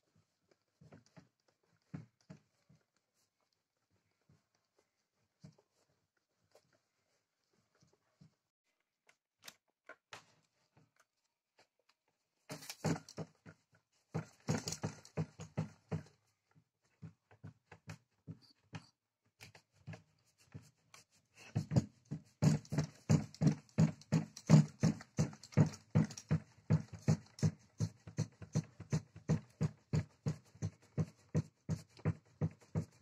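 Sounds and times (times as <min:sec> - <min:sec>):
cardboard model knocking and rattling: 0:12.5 - 0:16.2, 0:21.5 - 0:33.0.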